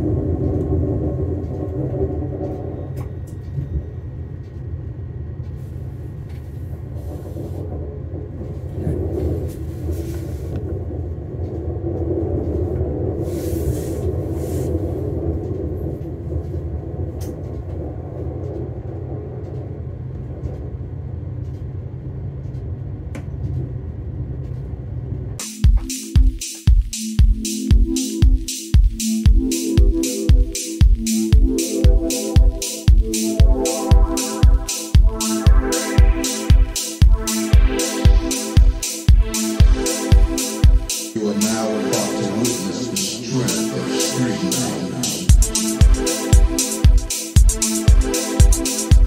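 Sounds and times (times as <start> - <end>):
diesel train rumbling: 0.0 - 25.4.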